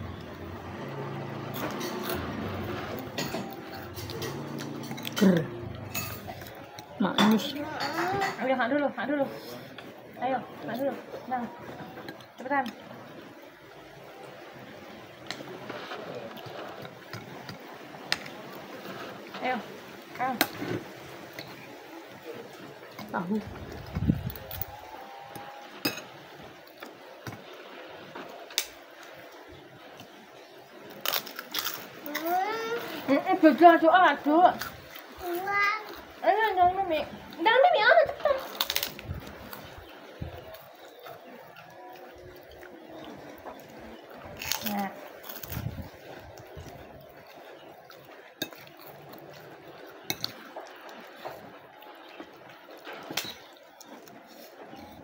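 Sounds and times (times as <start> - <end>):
cracker snapping and crunching: 30.9 - 32.3, 38.4 - 39.7, 40.4 - 55.0.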